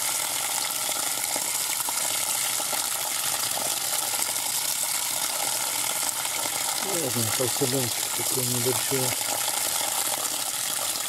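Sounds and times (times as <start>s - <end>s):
water pouring and splashing: 0.0s - 11.0s.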